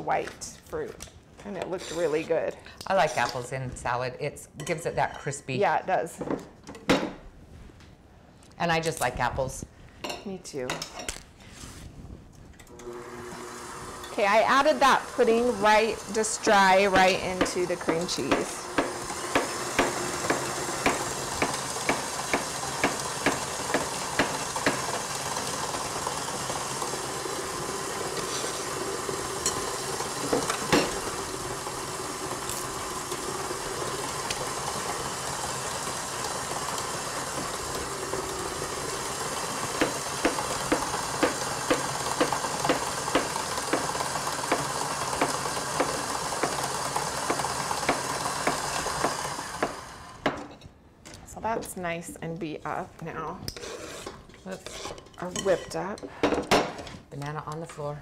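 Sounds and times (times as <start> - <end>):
electric stand mixer running: 12.7 - 50.4.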